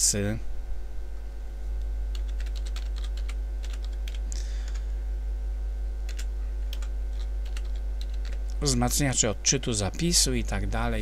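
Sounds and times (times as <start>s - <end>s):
steady low hum: 0.0s - 11.0s
typing on computer keyboard: 2.1s - 4.8s, 6.1s - 8.4s.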